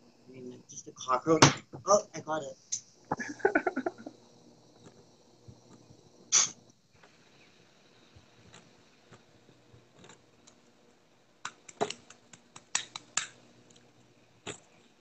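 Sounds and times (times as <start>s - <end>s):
sharp clicks and taps: 11.4s - 13.4s.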